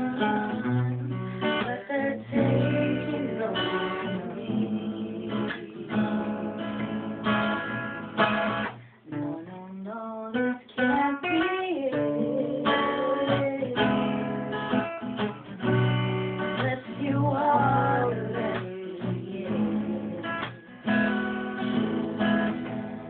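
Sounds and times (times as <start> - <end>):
woman singing: 0.0 - 7.2, 9.1 - 14.8, 15.6 - 20.7
acoustic guitar strumming chords: 0.0 - 23.0.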